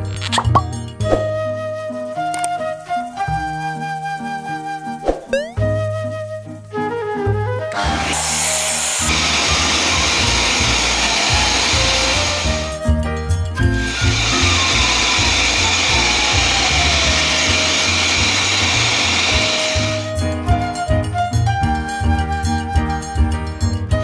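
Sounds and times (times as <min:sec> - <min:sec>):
pet blower rushing air: 0:07.7 - 0:12.8, 0:13.6 - 0:20.2.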